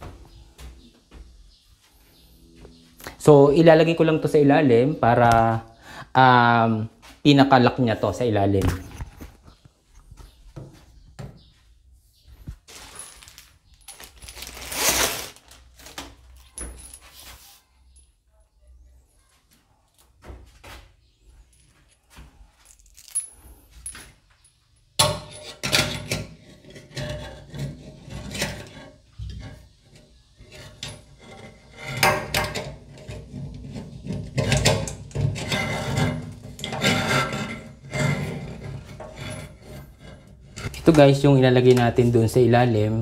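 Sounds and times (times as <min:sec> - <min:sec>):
metal hoses clinking and jangling: 0:12.7 - 0:15.3, 0:16.3 - 0:17.2, 0:21.4 - 0:26.2.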